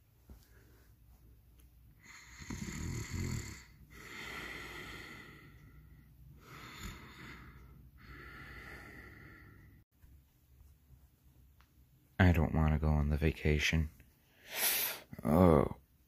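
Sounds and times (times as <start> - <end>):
person making mock snoring: 2.2 - 3.7.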